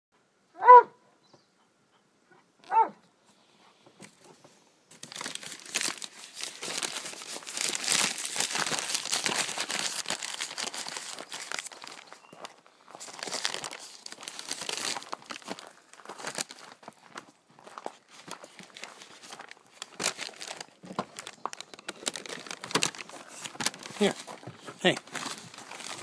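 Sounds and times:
dog barks: 0:00.6 - 0:01.0, 0:02.3 - 0:03.0
crinkling crackling rustle: 0:04.0 - 0:26.0.

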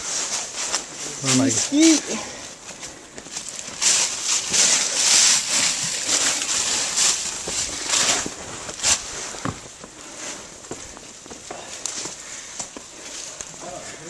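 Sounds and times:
footsteps crunching dry leaves: 0:00.0 - 0:11.2.

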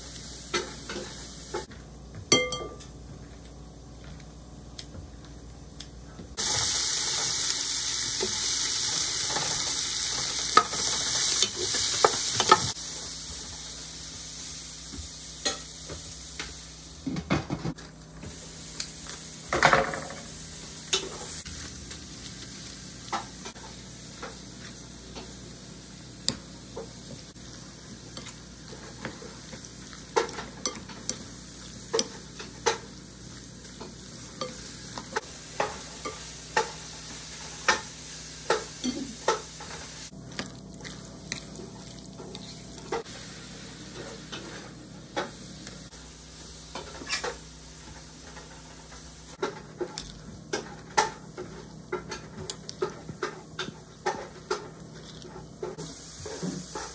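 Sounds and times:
metal spoon clinking on glass bowl: 0:02.3 - 0:02.9.

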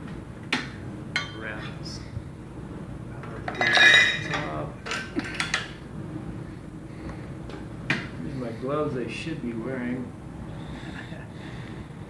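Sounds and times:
metal clanking: 0:03.2 - 0:05.8.

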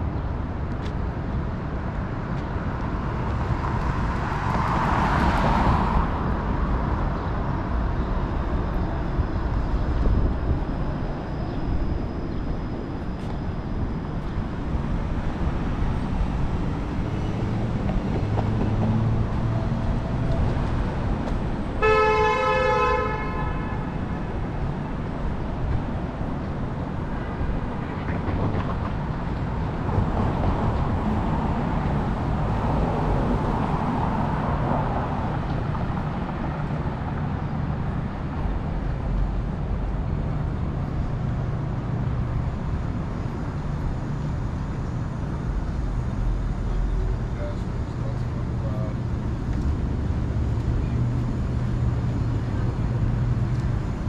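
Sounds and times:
street traffic: 0:00.0 - 0:54.0
vehicle horn honking: 0:21.8 - 0:24.0.

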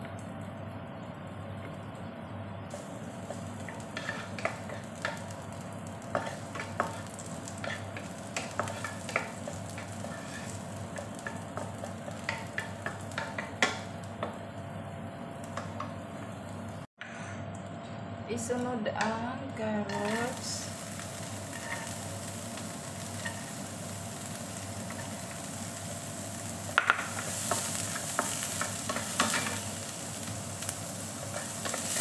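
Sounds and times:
ginger sizzling in oil: 0:00.0 - 0:16.9, 0:19.8 - 0:32.0
wooden spatula scraping a wok: 0:02.7 - 0:05.3, 0:06.0 - 0:13.9, 0:19.9 - 0:23.6.

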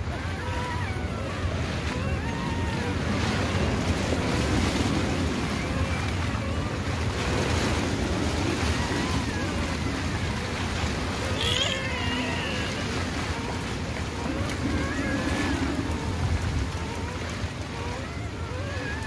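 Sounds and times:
puppy whimpering: 0:00.1 - 0:02.9.

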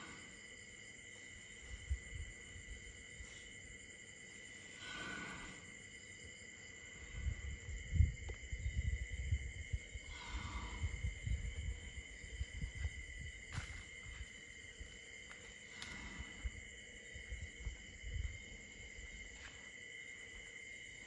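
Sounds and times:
crickets trilling: 0:00.0 - 0:21.0
low rumbling and thumping: 0:07.0 - 0:14.3.

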